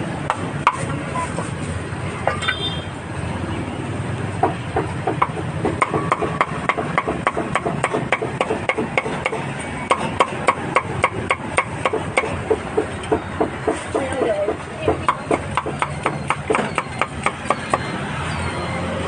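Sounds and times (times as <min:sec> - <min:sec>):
market background noise: 0:00.0 - 0:19.0
cleaver chopping meat: 0:04.4 - 0:17.9.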